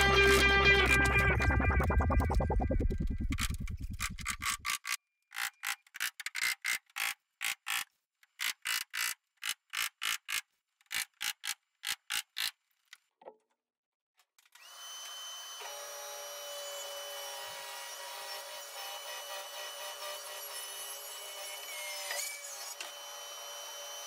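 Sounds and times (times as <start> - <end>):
table saw whining: 14.6 - 24.0.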